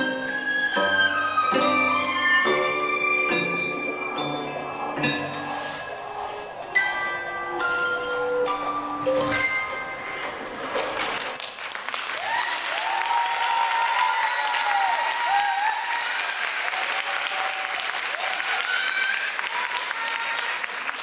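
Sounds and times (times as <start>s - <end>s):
audience clapping and cheering: 10.8s - 21.0s.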